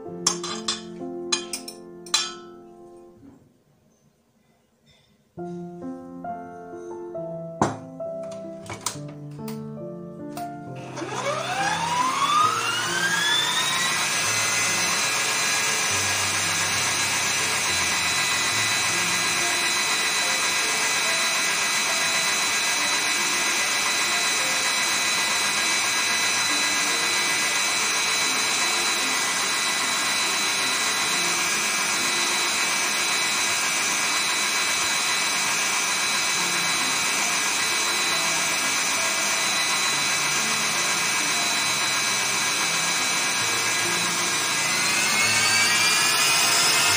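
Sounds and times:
stand mixer motor whine: 0:10.7 - 0:46.9.

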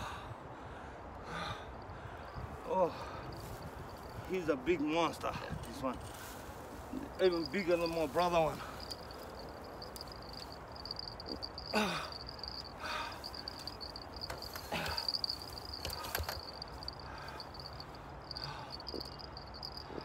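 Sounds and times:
handling noises: 0:03.3 - 0:20.0
cricket trilling: 0:07.0 - 0:20.0
man sighing breath: 0:11.7 - 0:13.6.

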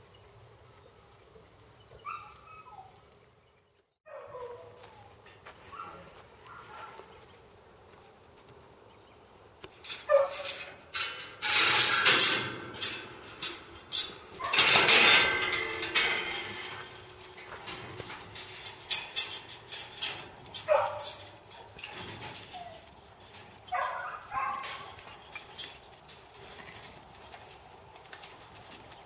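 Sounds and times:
dog barking: 0:04.1 - 0:04.8, 0:05.7 - 0:07.0, 0:10.1 - 0:10.4, 0:20.7 - 0:21.1, 0:23.7 - 0:24.8
steel gates rattling and clanking: 0:09.8 - 0:27.4.

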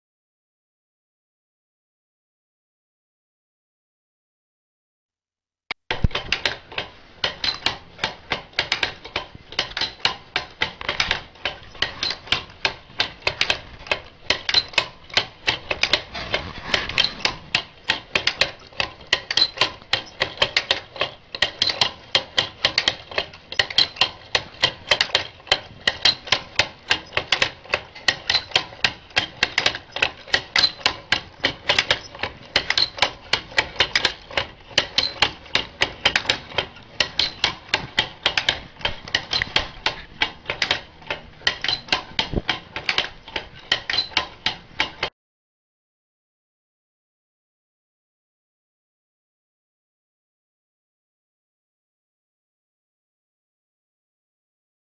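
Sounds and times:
wooden automaton mechanism clacking: 0:05.9 - 0:45.1.

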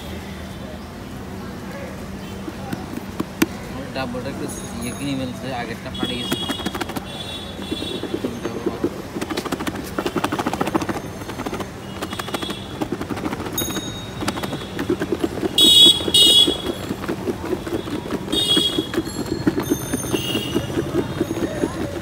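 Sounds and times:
engine pulsing rapidly: 0:02.5 - 0:22.0
vehicle horns honking: 0:05.8 - 0:08.6, 0:15.5 - 0:17.0, 0:17.7 - 0:21.9.

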